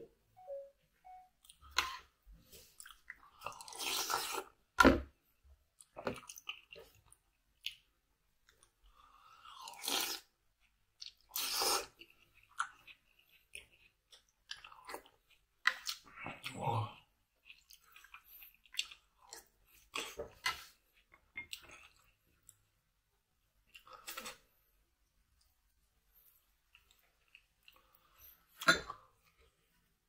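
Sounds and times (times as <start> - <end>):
slurping: 2.6 - 4.6.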